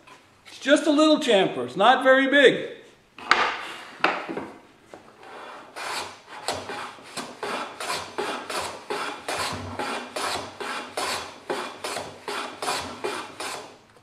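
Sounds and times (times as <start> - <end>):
hand plane scraping wood: 5.2 - 13.8.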